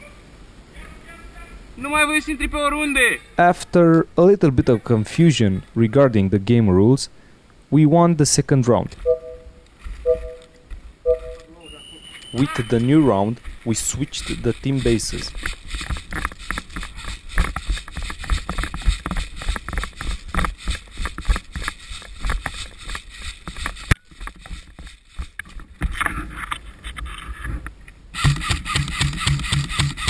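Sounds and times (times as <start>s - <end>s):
gear jostling: 12.1s - 25.4s.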